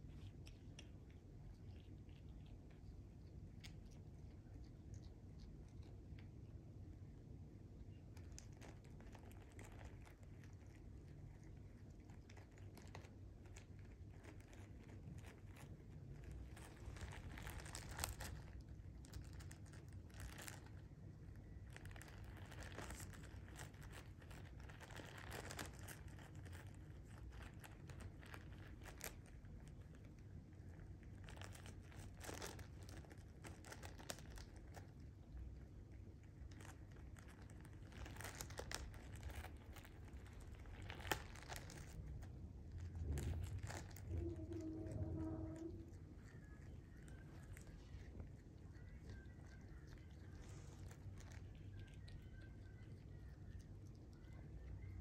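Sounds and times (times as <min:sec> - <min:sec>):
plastic bag crinkling: 0:11.9 - 0:20.8, 0:21.6 - 0:29.7, 0:31.0 - 0:35.0, 0:36.4 - 0:53.1.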